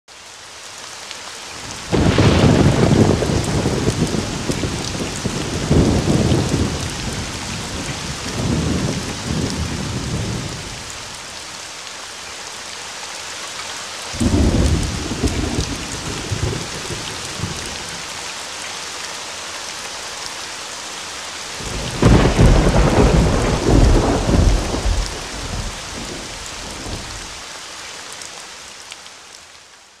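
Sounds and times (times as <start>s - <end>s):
steady rain: 0.1s - 30.0s
thunder rolling: 1.9s - 10.6s, 14.2s - 17.9s, 21.6s - 27.3s.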